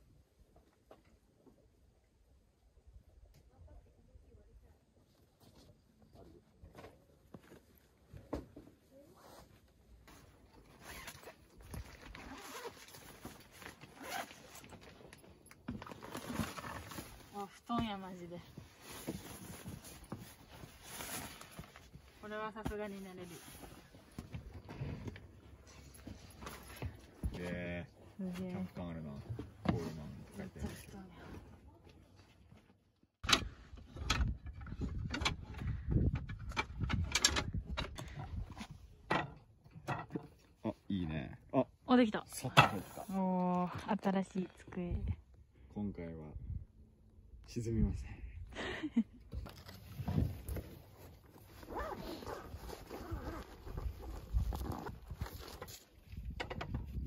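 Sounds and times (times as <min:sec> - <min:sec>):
fabric rustling: 0:09.0 - 0:14.7, 0:50.2 - 0:56.0
zipper being pulled open: 0:10.8 - 0:11.4, 0:12.0 - 0:14.7, 0:51.3 - 0:55.8.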